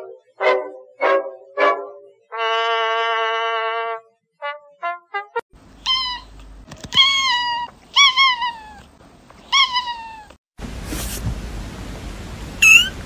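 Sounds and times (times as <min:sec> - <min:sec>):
cat meowing: 0:05.8 - 0:10.4, 0:12.6 - 0:13.0.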